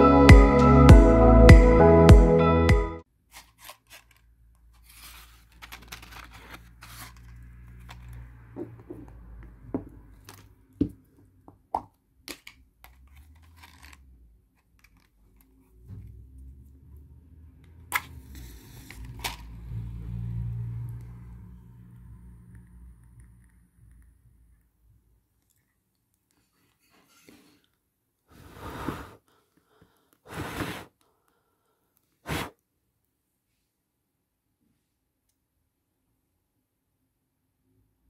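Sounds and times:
match striking and flaring: 0:32.2 - 0:32.6.

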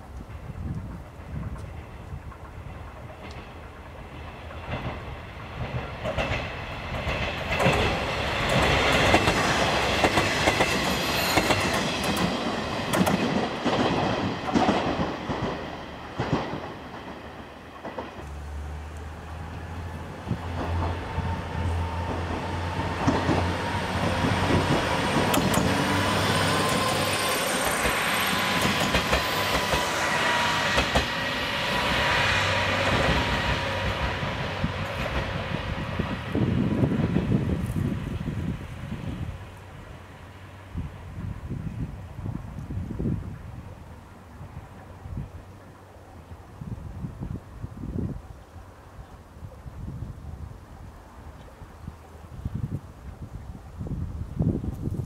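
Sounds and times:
train wheels clattering over joints: 0:22.0 - 0:30.0.

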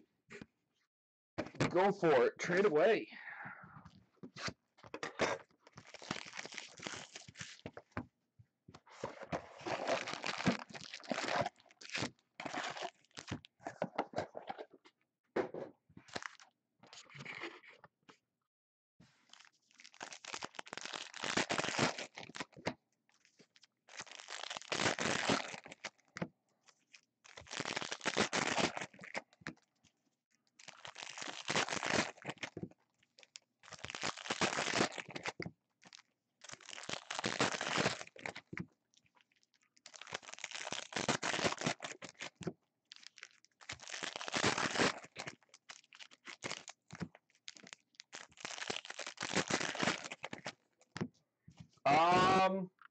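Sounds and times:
foil wrappers tearing and crinkling: 0:05.8 - 0:07.6, 0:09.6 - 0:13.4, 0:19.2 - 0:22.6, 0:23.9 - 0:26.0, 0:27.3 - 0:29.2, 0:30.6 - 0:32.6, 0:33.6 - 0:38.5, 0:39.9 - 0:50.6.

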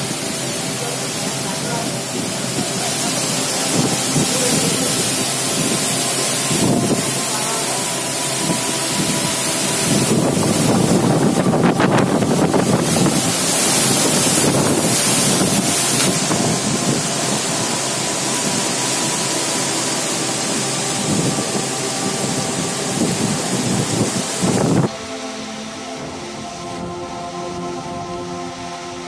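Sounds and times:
wind buffeting microphone: 0:00.0 - 0:07.3, 0:08.0 - 0:19.2, 0:20.5 - 0:25.0
heavy rain: 0:00.0 - 0:29.0
wind gusting through trees: 0:00.0 - 0:29.0.

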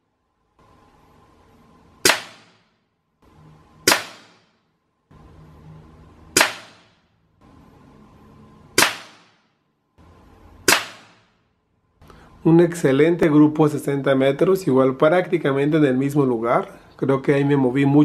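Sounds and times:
air rifle shots cracking: 0:02.0 - 0:02.7, 0:03.8 - 0:04.6, 0:06.4 - 0:07.0, 0:08.8 - 0:09.5, 0:10.6 - 0:11.4.

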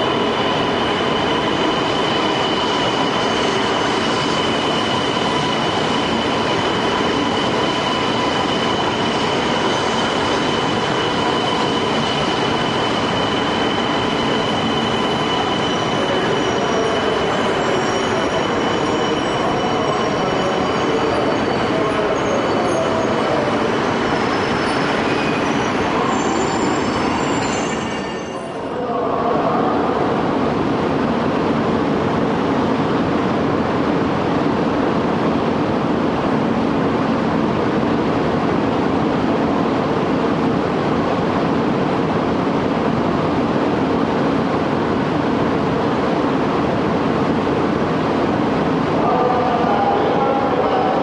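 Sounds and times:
train squealing tones: 0:00.0 - 0:28.9
train rolling noise: 0:00.0 - 0:51.0.

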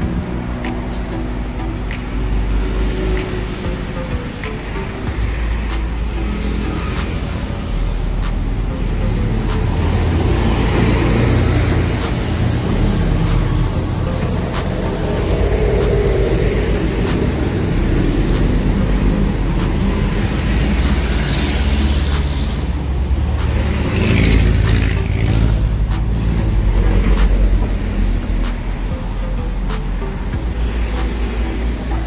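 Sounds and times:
car engine rumbling: 0:00.0 - 0:32.0
roof motors whirring: 0:00.0 - 0:32.0.

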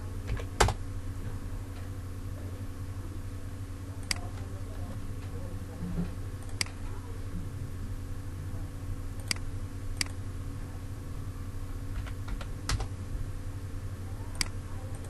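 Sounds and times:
steady low hum: 0:00.0 - 0:15.0
computer mouse clicks: 0:04.0 - 0:04.5, 0:06.4 - 0:06.9, 0:09.2 - 0:10.2, 0:14.4 - 0:15.0.

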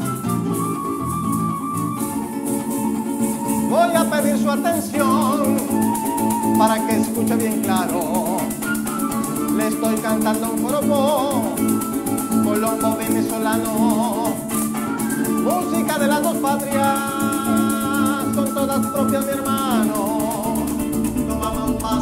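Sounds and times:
maracas shaking: 0:00.0 - 0:22.0
strummed cuatro: 0:00.0 - 0:22.0
vibrato melody line: 0:00.0 - 0:22.0
electric bass: 0:20.6 - 0:22.0.

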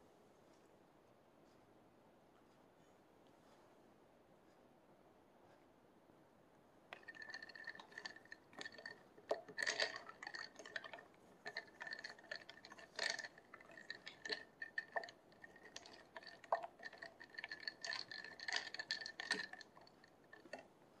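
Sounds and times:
ice and wood clinking against glass: 0:07.0 - 0:20.6.

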